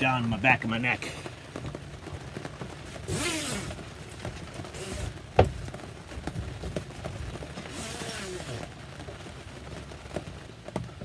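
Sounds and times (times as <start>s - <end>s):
zipper being pulled: 3.1s - 3.8s, 7.7s - 8.6s.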